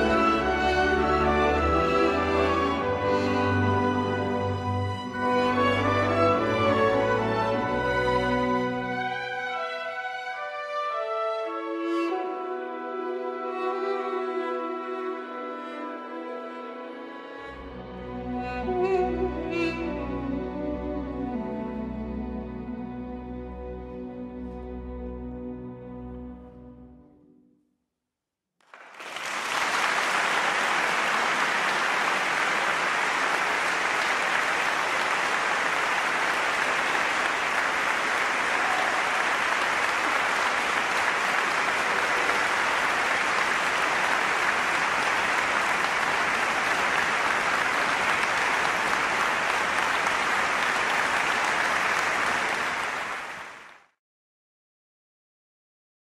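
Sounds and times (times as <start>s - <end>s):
audience applauding: 28.6s - 54.0s.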